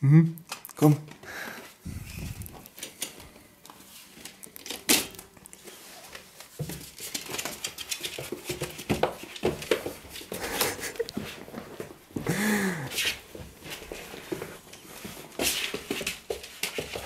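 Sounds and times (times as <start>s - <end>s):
puppy scrabbling on wooden floor: 6.1s - 12.0s.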